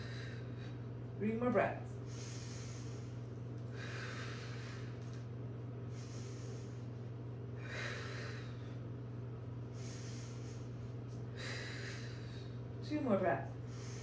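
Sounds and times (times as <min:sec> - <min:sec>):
woman breathing forcefully: 0:00.0 - 0:00.9, 0:02.0 - 0:05.2, 0:05.8 - 0:12.8, 0:13.6 - 0:14.0
steady low hum: 0:00.0 - 0:14.0.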